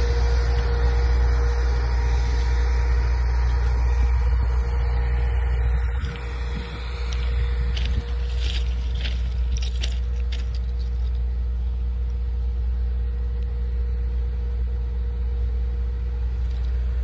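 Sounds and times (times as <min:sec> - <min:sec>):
faint steady whine: 0:00.0 - 0:17.0
train engine idling: 0:00.0 - 0:17.0
footsteps crunching on gravel: 0:05.8 - 0:11.4.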